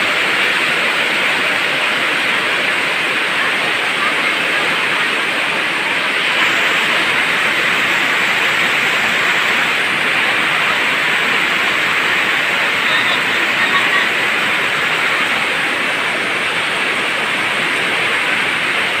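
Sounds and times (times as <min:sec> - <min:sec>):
heavy rain on flooded street: 0:00.0 - 0:19.0.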